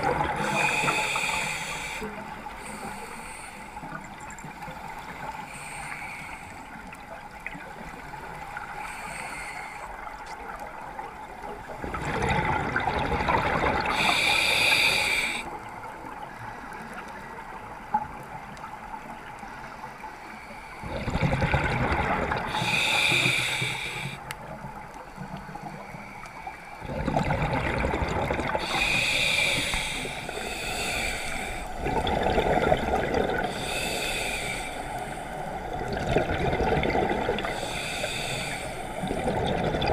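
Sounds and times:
steady water hiss: 0.0 - 39.9
diver breathing through regulator: 0.1 - 4.0, 4.6 - 6.8, 8.6 - 10.0, 13.5 - 15.5, 22.0 - 24.3, 28.4 - 35.8, 36.6 - 39.6.

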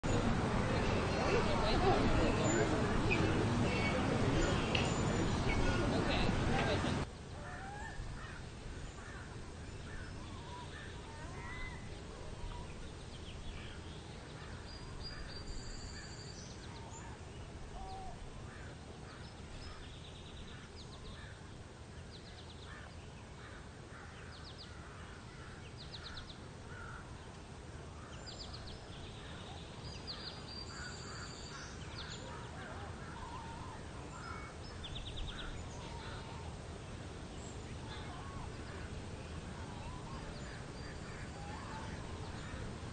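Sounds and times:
birds chirping and calling: 1.3 - 17.2, 28.0 - 36.4.

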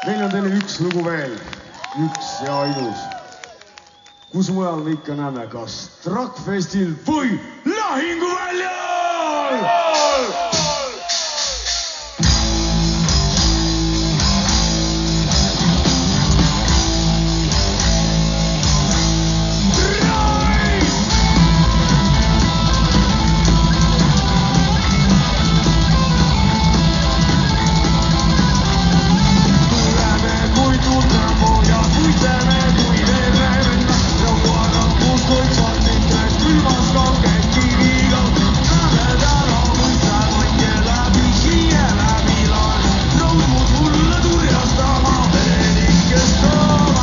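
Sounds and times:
drum kit: 9.7 - 47.0
distorted electric guitars: 10.0 - 47.0
bass guitar: 12.1 - 47.0.

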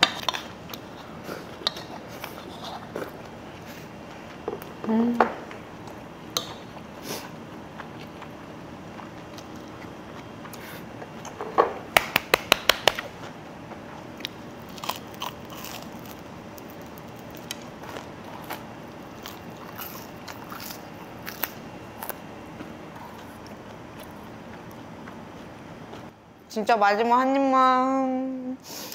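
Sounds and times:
chewing: 14.2 - 26.1.

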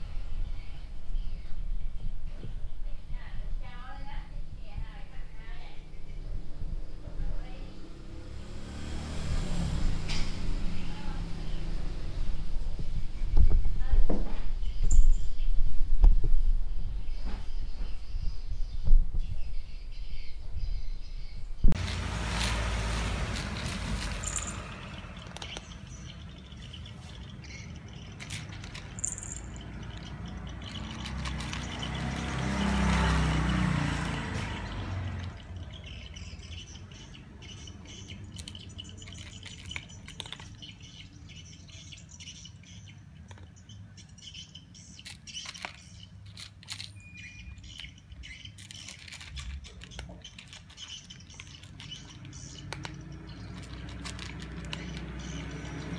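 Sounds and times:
birds chirping: 0.0 - 55.9
cat crunching kibble: 27.8 - 34.4, 38.1 - 40.6, 45.0 - 46.9, 48.5 - 55.9.

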